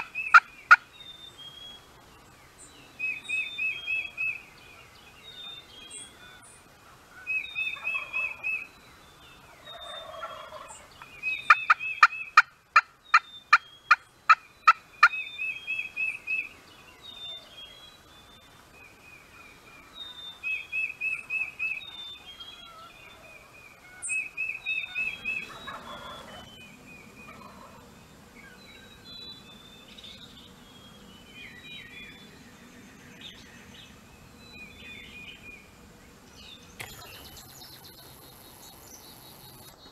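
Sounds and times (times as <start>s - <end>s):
turkey gobbling: 0.0s - 0.9s, 7.1s - 8.6s, 9.5s - 15.2s, 23.9s - 26.5s, 27.3s - 27.8s
songbird high trill: 0.0s - 1.9s, 2.8s - 6.6s, 19.9s - 23.0s, 23.9s - 27.6s
turkey yelps: 7.2s - 8.6s, 9.7s - 10.8s, 24.8s - 26.4s, 27.3s - 27.8s.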